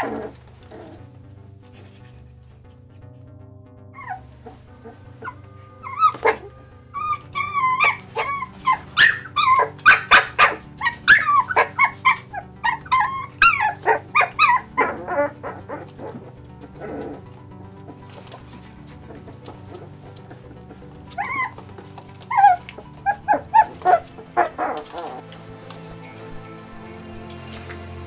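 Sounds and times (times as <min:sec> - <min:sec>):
quiet background music: 0:00.0 - 0:28.0
puppies whining and yelping: 0:04.0 - 0:17.2, 0:17.8 - 0:26.7.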